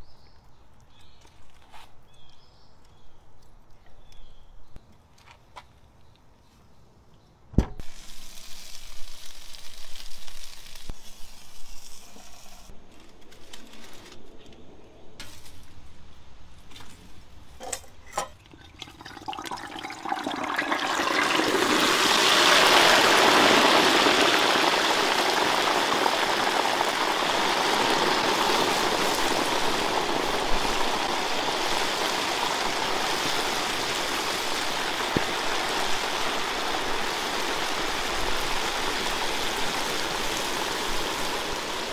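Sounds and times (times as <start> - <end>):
hot oil sizzling and bubbling: 7.8 - 12.7, 18.8 - 41.9.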